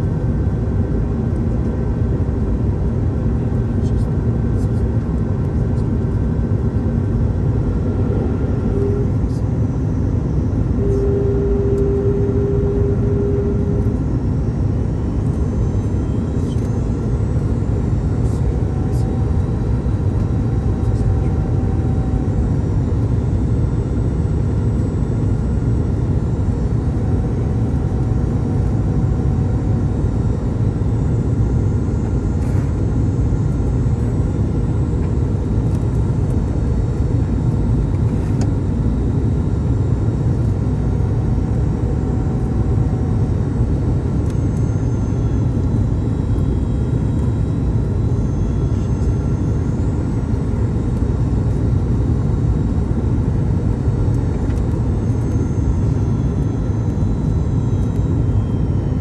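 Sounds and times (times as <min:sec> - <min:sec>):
airflow and jet engine rumble: 0:00.0 - 0:59.0
faint steady whines: 0:00.0 - 0:59.0
faint higher tone: 0:07.7 - 0:32.7, 0:41.4 - 0:52.1.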